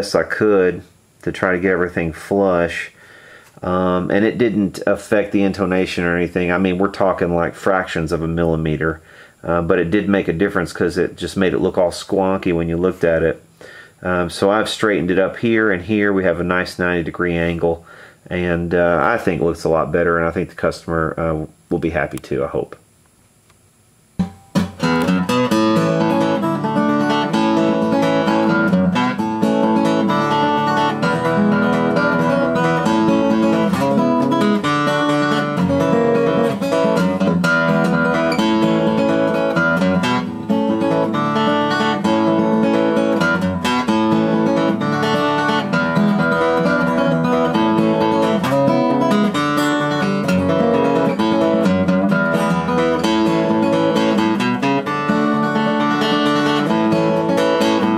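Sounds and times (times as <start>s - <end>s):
acoustic guitar plucked notes and chords: 24.2s - 57.9s.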